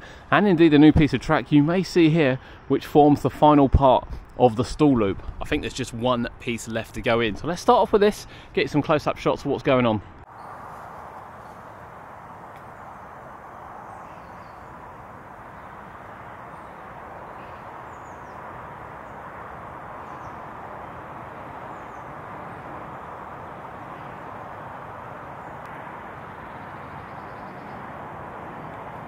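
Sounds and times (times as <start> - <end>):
distant background hiss: 10.3 - 29.0
faint bird chirps: 12.6 - 19.2.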